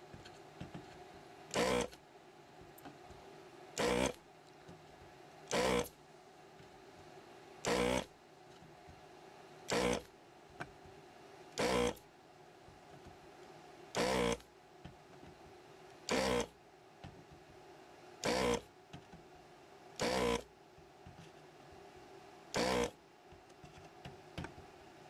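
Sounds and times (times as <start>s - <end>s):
desoldering pump buzzing: 1.5s - 2.0s, 3.8s - 4.2s, 5.5s - 6.0s, 7.6s - 8.2s, 9.7s - 10.1s, 11.6s - 12.0s, 13.9s - 14.5s, 16.0s - 16.6s, 18.2s - 18.7s, 20.0s - 20.5s, 22.5s - 23.0s.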